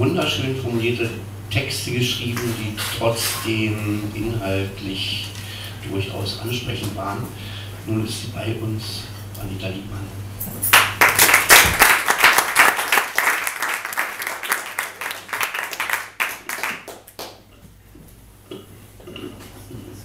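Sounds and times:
audience applauding: 0:10.7 - 0:17.4.

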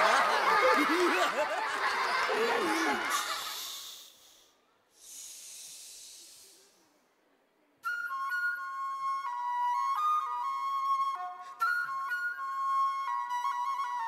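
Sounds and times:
soft airy hiss: 0:03.0 - 0:07.8
flute melody: 0:07.8 - 0:14.0.

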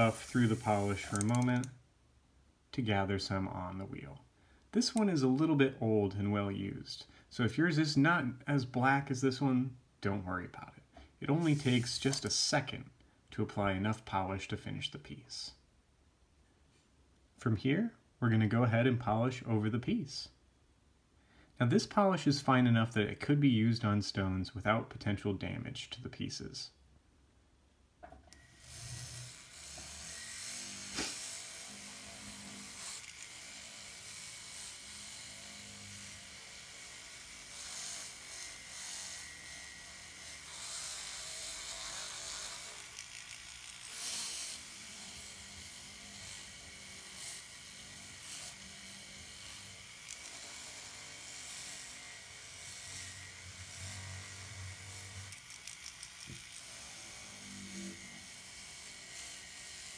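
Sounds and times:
rotary tool whining: 0:00.0 - 0:01.7, 0:11.4 - 0:12.3, 0:28.0 - 0:59.9.

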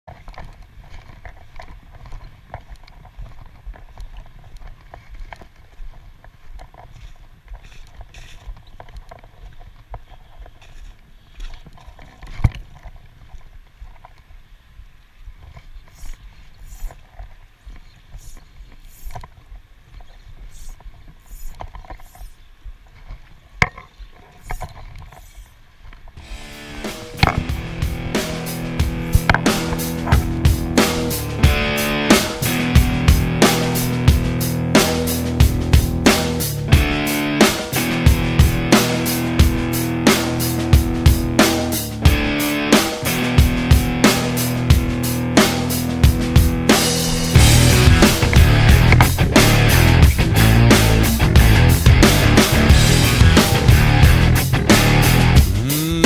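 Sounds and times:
low rumble: 0:26.2 - 0:37.0, 0:44.6 - 0:55.6
sharp click: 0:27.2 - 0:27.5.

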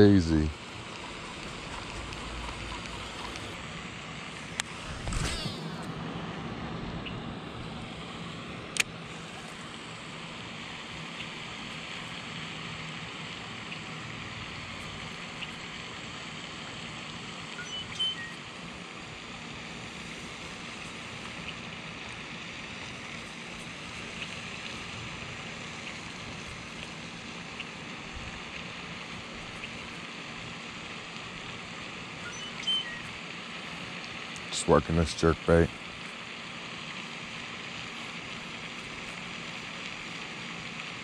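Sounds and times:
steady outdoor hiss: 0:00.0 - 0:41.0
faint high chirps: 0:17.5 - 0:18.6, 0:32.2 - 0:33.8.

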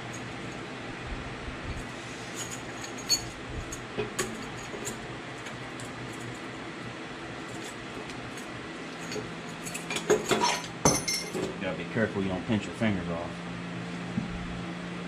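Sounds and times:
steady background hum: 0:00.0 - 0:15.0.

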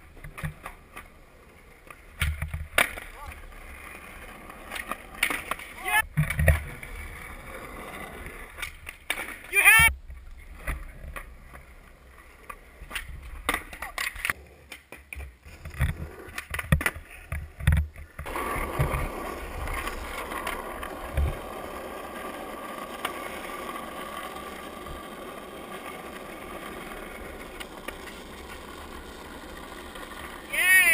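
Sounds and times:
skateboard wheels rolling on asphalt: 0:00.0 - 0:30.9
skateboard clacks on concrete: 0:12.4 - 0:30.9.

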